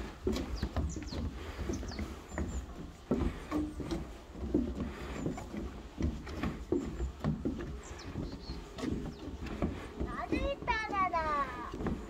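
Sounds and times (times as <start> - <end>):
footsteps on wooden boardwalk: 0.0 - 12.0.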